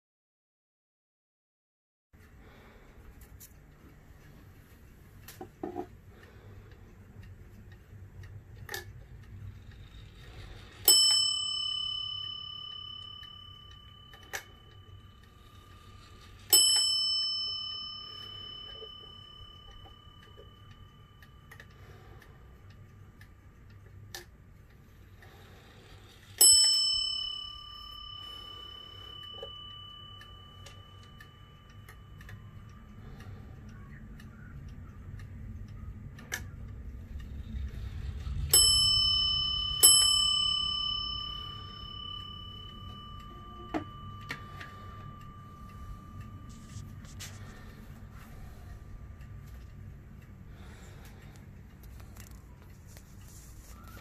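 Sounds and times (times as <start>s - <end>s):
clock bell striking: 9.6s - 22.8s, 25.3s - 33.4s, 37.4s - 51.3s.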